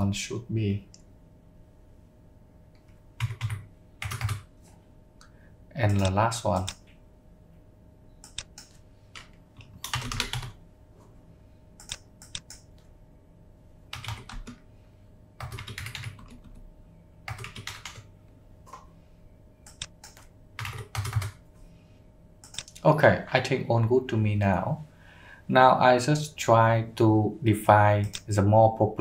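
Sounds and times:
typing on computer keyboard: 3.2s - 4.5s, 8.2s - 10.6s, 11.8s - 12.7s, 13.9s - 14.6s, 15.4s - 16.6s, 17.3s - 18.1s, 19.6s - 21.4s.

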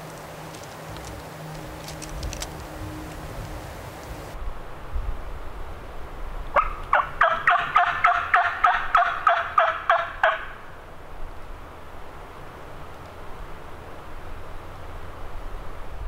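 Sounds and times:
turkey call hen yelps: 6.6s - 10.6s.

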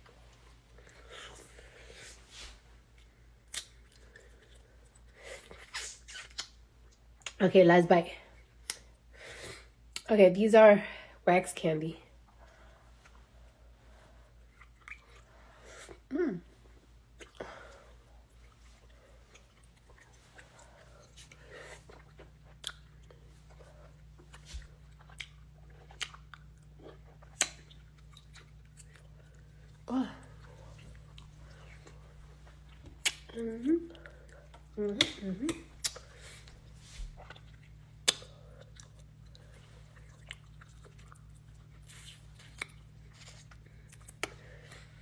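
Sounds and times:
low steady hum: 0.0s - 45.0s
mouth clicks and smacks: 5.6s - 7.4s, 27.2s - 28.0s, 32.8s - 34.0s, 34.8s - 36.1s, 37.2s - 38.4s
wet chewing: 14.3s - 15.5s, 18.1s - 44.9s.

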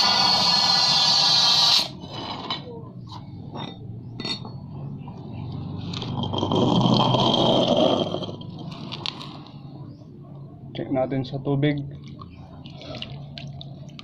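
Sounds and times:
compressed air hissing: 0.0s - 2.0s.

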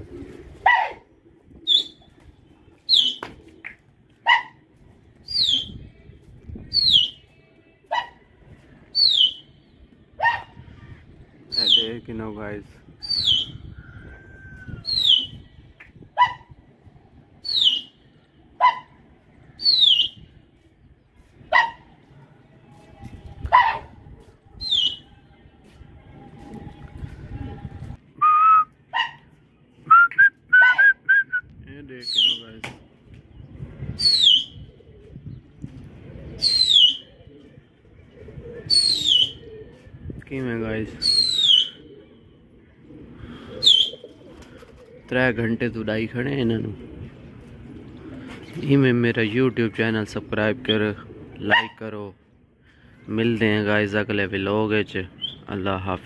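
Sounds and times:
dog yelping: 0.6s - 1.0s, 4.3s - 4.6s.

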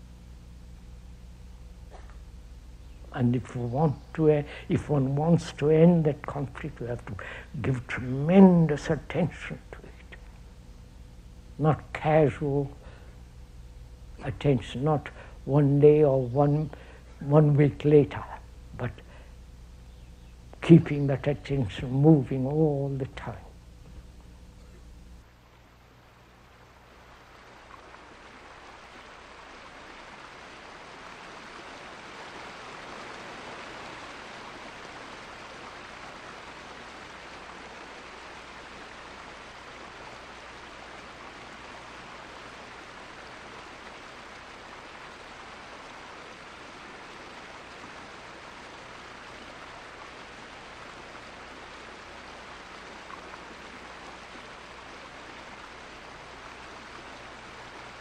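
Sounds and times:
stream water rushing: 25.4s - 58.0s.

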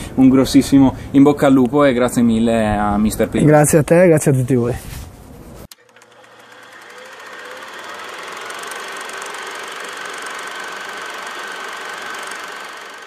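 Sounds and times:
rapid mechanical clatter: 5.8s - 13.0s.

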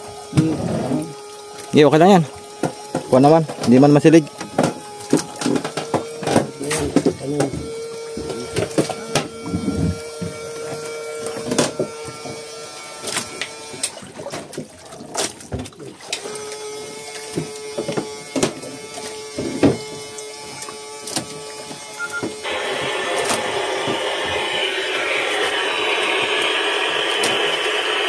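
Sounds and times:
steady mechanical hum: 0.0s - 28.0s
sharp knocks and clatter: 4.4s - 12.4s.

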